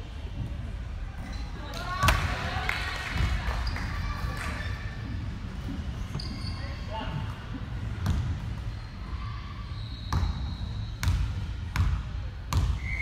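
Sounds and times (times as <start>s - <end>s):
basketball bouncing on court: 7.8s - 8.6s, 10.1s - 12.8s
high squeal: 8.6s - 11.0s.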